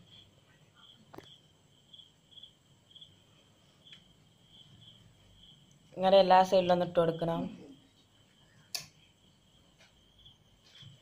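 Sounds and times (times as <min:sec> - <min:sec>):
faint high chirping: 0:00.0 - 0:05.9.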